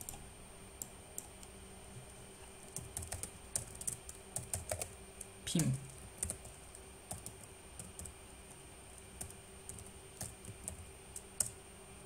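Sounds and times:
keyboard typing clicks: 2.7s - 4.9s, 6.2s - 8.1s.

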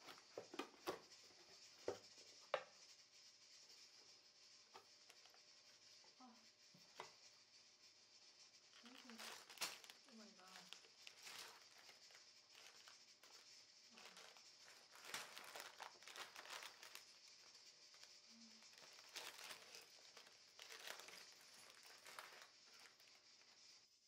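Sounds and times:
plastic bags crinkling: 8.8s - 17.2s, 17.9s - 23.2s.

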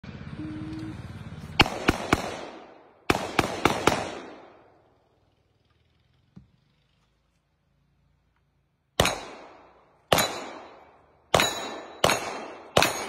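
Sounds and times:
handgun shots echoing: 1.6s - 4.6s, 9.0s - 13.0s.

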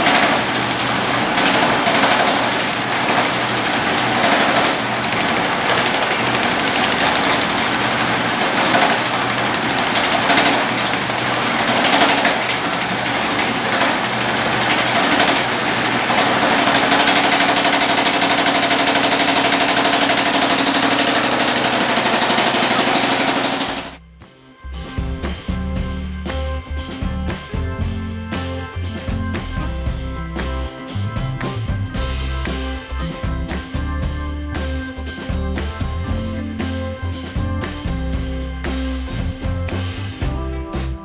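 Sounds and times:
power hammer on sheet metal: 0.0s - 24.0s.

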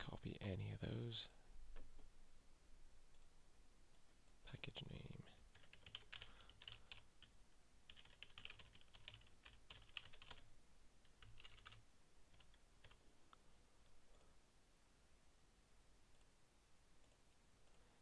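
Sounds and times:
computer keyboard typing: 5.5s - 7.3s, 7.9s - 13.0s.

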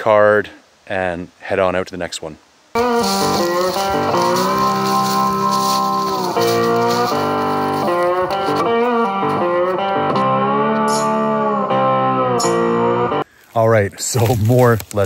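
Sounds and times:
guitar music with bending notes: 2.8s - 13.2s.

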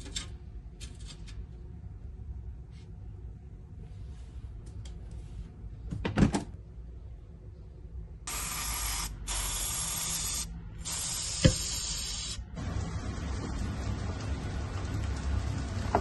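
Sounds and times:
spray bottle hissing: 8.3s - 12.4s.

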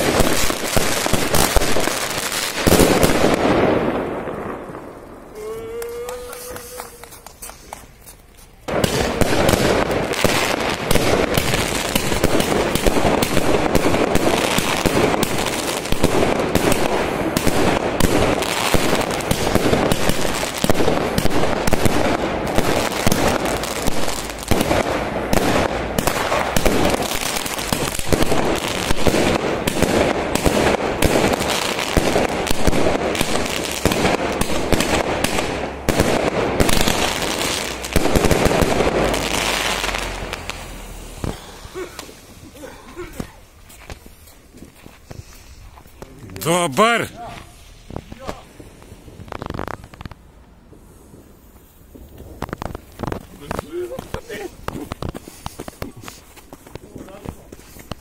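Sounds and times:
firework barrage bangs: 0.0s - 5.3s, 8.7s - 42.5s.

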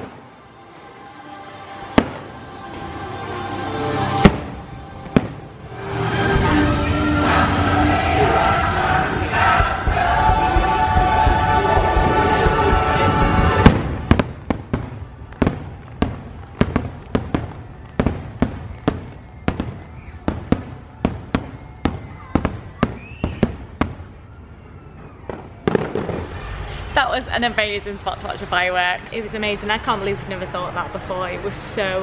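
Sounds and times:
show music with singing: 5.7s - 13.7s.

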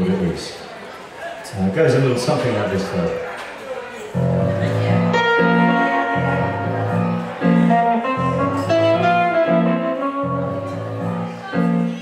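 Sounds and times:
low bass line: 4.2s - 11.8s
electric guitar melody: 4.2s - 12.0s.

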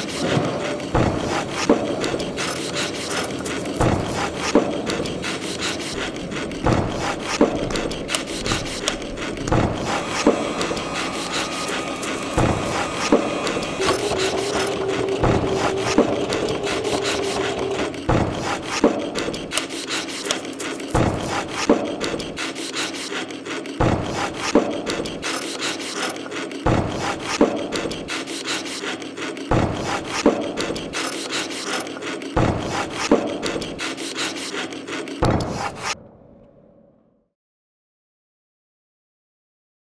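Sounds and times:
scraping and sawing strokes: 0.0s - 36.0s
steady hum: 0.6s - 18.7s
even knocking: 9.4s - 18.7s.

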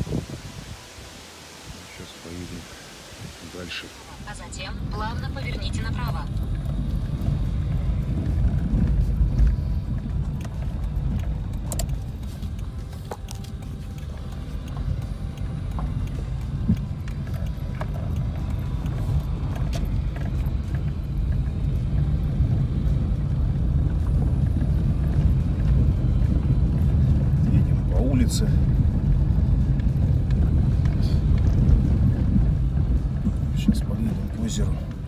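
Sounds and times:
car engine and tyre rumble: 0.0s - 35.0s.

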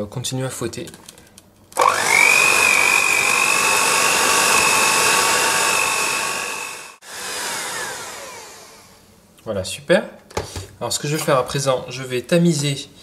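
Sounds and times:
electric hand mixer whining: 1.8s - 9.0s.

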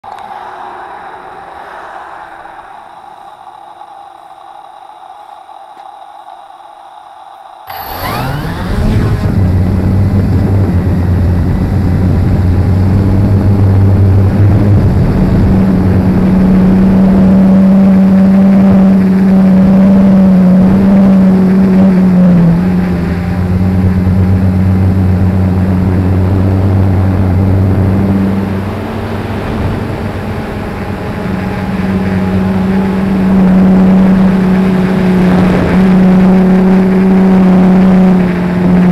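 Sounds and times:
drone propellers buzzing hum: 0.0s - 38.9s.

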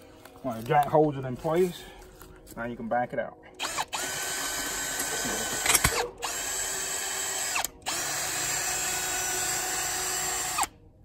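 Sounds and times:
cordless drill motor whine: 3.6s - 10.8s.

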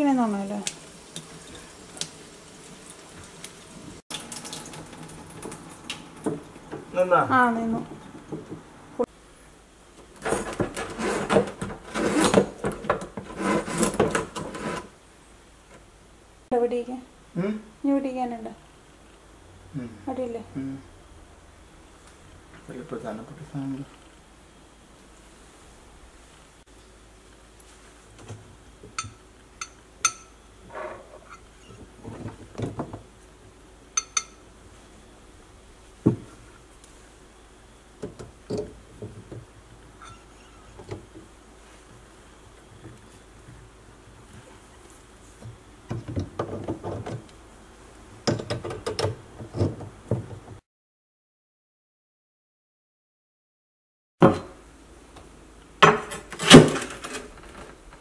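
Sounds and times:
metal hoses scraping against sink: 10.2s - 14.9s, 29.0s - 32.4s, 40.0s - 40.9s
rubbing noises: 13.2s - 15.0s.

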